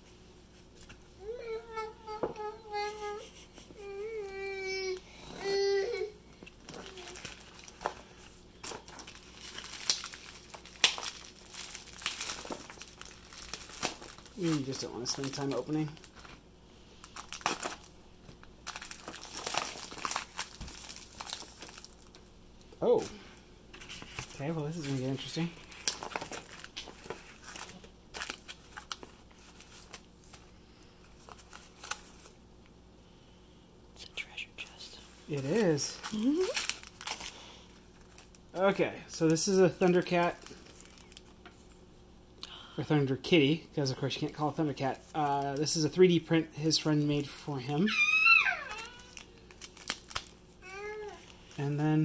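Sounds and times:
plastic bag crackling: 0:06.6 - 0:16.4, 0:17.0 - 0:18.0, 0:18.6 - 0:22.2, 0:24.0 - 0:30.4, 0:35.3 - 0:38.6, 0:39.2 - 0:41.4, 0:47.8 - 0:50.9
plastic wrap crinkling and tearing: 0:06.6 - 0:16.4, 0:17.0 - 0:22.3, 0:23.8 - 0:30.5, 0:31.1 - 0:32.4, 0:35.3 - 0:41.4, 0:47.7 - 0:51.7.

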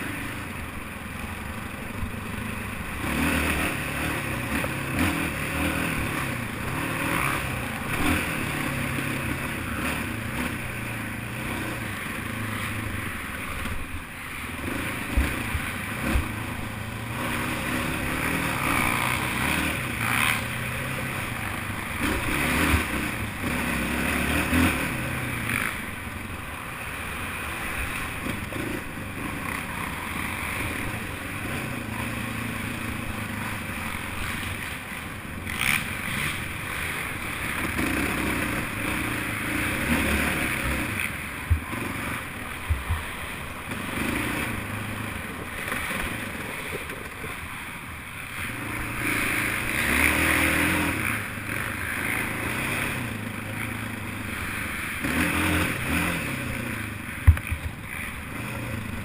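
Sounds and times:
quad engine running hard: 0:00.0 - 0:59.0.

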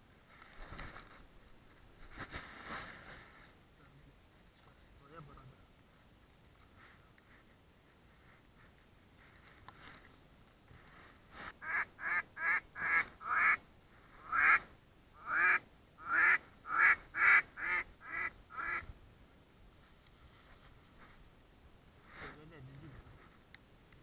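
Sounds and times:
duck call quacks: 0:11.6 - 0:13.6, 0:14.2 - 0:14.6, 0:15.2 - 0:18.8.

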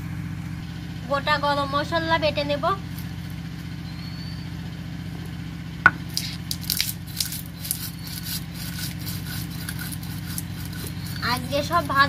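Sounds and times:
spices being ground: 0:06.1 - 0:12.0.

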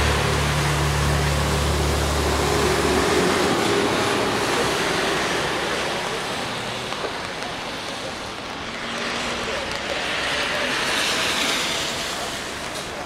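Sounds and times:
tyres on wet pavement: 0:00.0 - 0:13.0
vehicle engine hum: 0:00.0 - 0:13.0.

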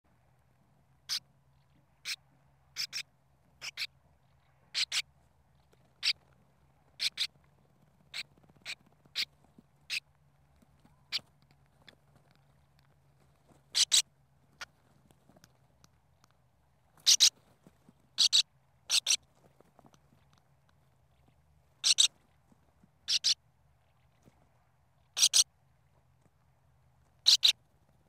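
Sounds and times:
faint low hum: 0:00.1 - 0:28.0
birds chirping harshly: 0:02.8 - 0:03.0, 0:03.6 - 0:03.9, 0:04.7 - 0:05.0, 0:07.0 - 0:07.3, 0:13.7 - 0:14.0, 0:17.0 - 0:17.4, 0:18.2 - 0:19.2, 0:21.8 - 0:22.1, 0:23.1 - 0:23.4, 0:25.2 - 0:25.4, 0:27.2 - 0:27.6.

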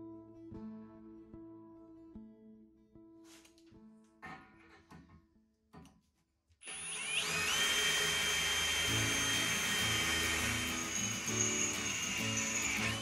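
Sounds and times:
cordless drill cutting into steel: 0:06.6 - 0:13.0.

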